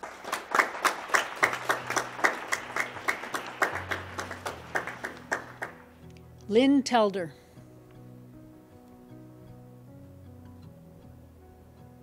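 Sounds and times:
people clapping hands: 0:00.0 - 0:06.1.

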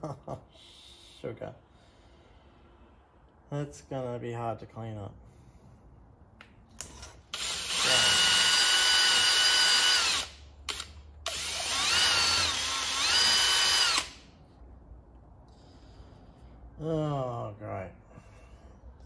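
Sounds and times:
electric drill motor whine: 0:07.3 - 0:14.2.

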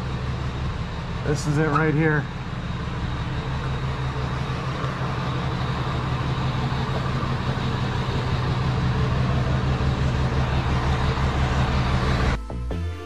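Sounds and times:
truck engine idling: 0:00.0 - 0:12.8.

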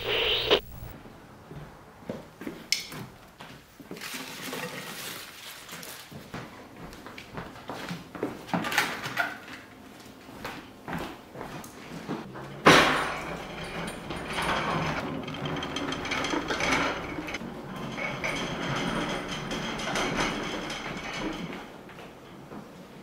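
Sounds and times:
rustling: 0:00.0 - 0:01.0.

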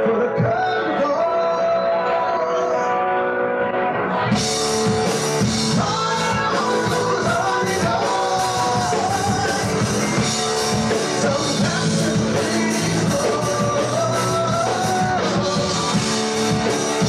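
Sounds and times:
bass guitar: 0:00.0 - 0:17.0
drums: 0:00.0 - 0:17.0
electric guitars: 0:00.0 - 0:17.0
keyboard: 0:00.0 - 0:17.0
person singing: 0:00.0 - 0:17.0.

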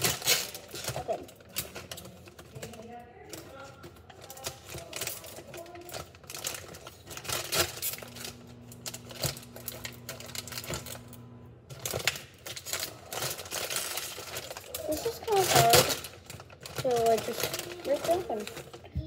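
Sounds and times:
plastic bag crinkling: 0:00.0 - 0:19.0
steady low hum: 0:07.8 - 0:12.1.

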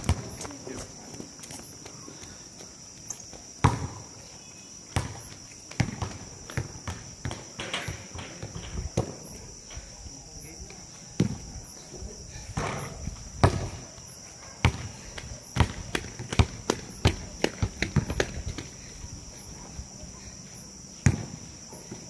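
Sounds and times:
basketball bouncing on court: 0:00.0 - 0:00.5, 0:03.3 - 0:04.1, 0:04.9 - 0:09.2, 0:12.6 - 0:13.8, 0:14.6 - 0:15.0, 0:15.6 - 0:18.7, 0:21.0 - 0:21.4
insects humming: 0:00.0 - 0:22.0.

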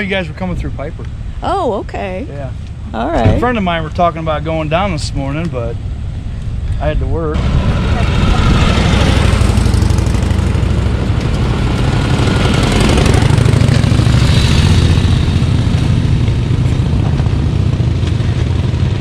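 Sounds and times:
motorcycles passing by: 0:06.8 - 0:19.0.

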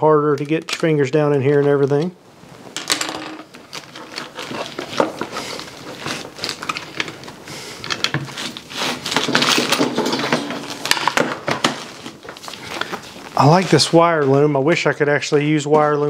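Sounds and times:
cable rubbing and scraping: 0:03.5 - 0:10.9.

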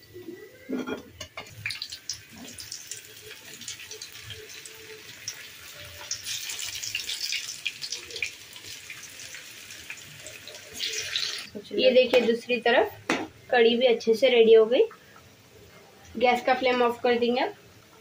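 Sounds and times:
deep-frying sizzle in oil: 0:01.4 - 0:12.2.

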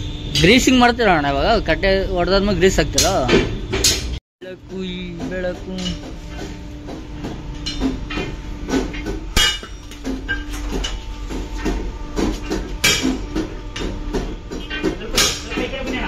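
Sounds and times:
machine hum: 0:00.0 - 0:16.0
sledgehammer striking steel: 0:07.2 - 0:15.7.

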